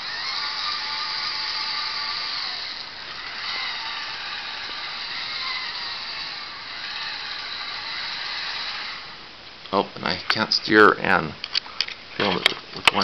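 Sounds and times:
robot motors whirring: 0.0s - 9.3s
gears grinding: 0.0s - 9.4s.

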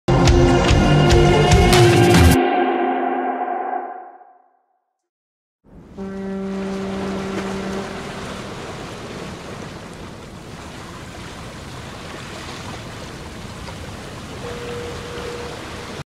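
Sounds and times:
steady higher tone: 1.9s - 4.4s
wind: 5.6s - 16.0s
deep ship's horn: 5.7s - 9.9s, 14.4s - 16.0s
sea waves: 5.7s - 16.0s.

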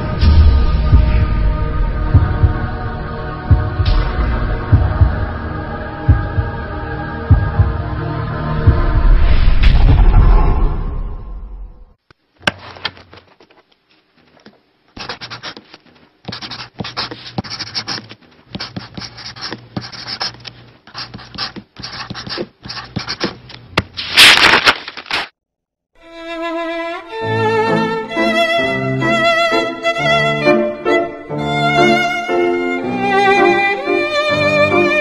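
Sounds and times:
pencil scratching on paper: 15.0s - 23.4s.

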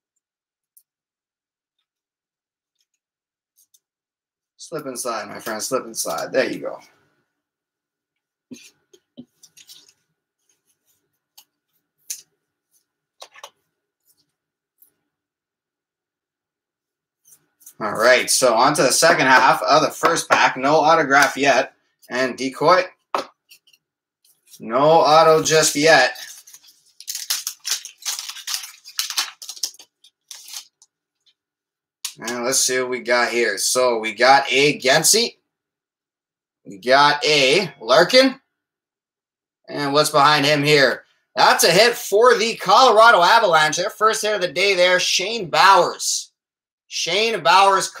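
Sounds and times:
trading cards rustling: 23.2s - 31.4s.

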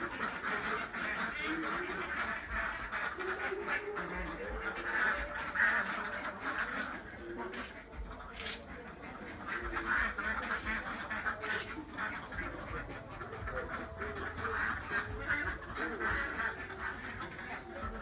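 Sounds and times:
ducks quacking: 0.0s - 18.0s.

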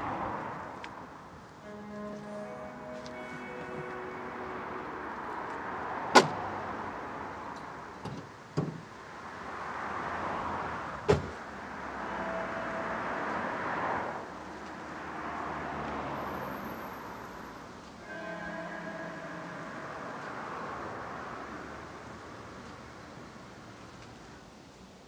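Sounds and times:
outdoor noise: 0.0s - 25.0s
car door slamming: 6.1s - 6.4s, 8.0s - 8.9s, 11.0s - 11.4s.

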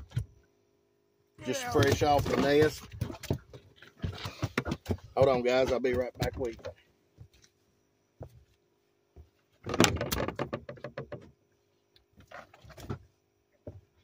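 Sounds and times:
faint steady hum: 0.0s - 14.0s
gear clattering in a boat: 1.5s - 7.5s, 9.6s - 11.4s.

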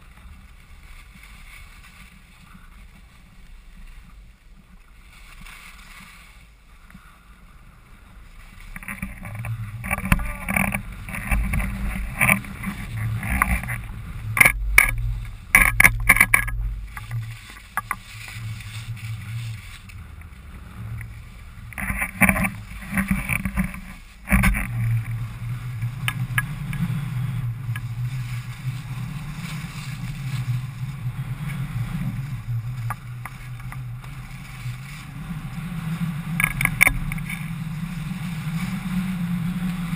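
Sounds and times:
skis scraping over snow: 0.0s - 39.9s
wind on microphone: 0.0s - 39.9s
sharp clicks and clatters: 8.7s - 18.6s, 21.7s - 25.2s, 36.4s - 37.5s.

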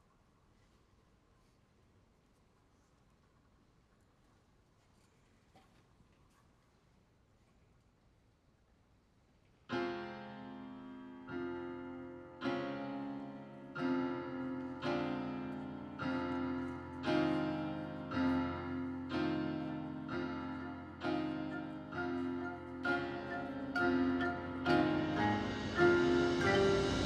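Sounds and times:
electronic piano chords: 9.7s - 27.0s.

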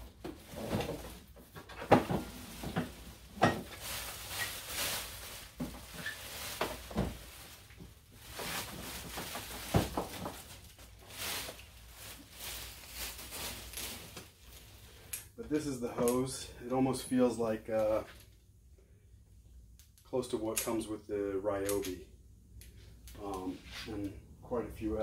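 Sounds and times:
plastic bag crinkling: 2.4s - 15.1s.

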